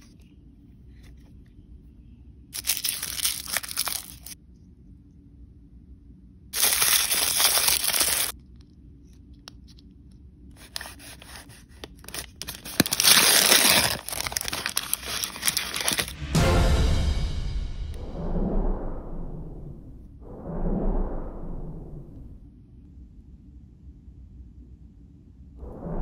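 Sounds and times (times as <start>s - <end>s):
foil wrappers crinkling: 2.6s - 4.4s, 6.6s - 8.4s, 10.6s - 16.2s.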